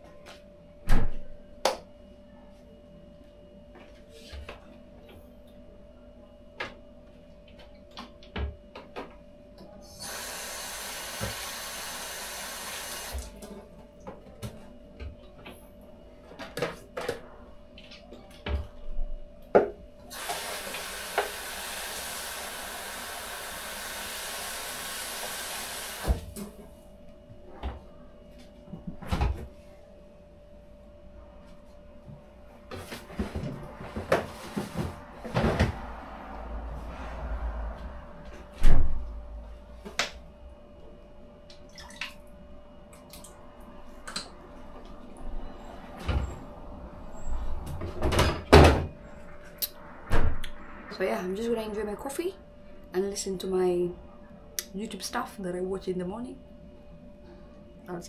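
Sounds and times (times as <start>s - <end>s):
tap running: 10.0s - 13.3s, 20.1s - 26.3s.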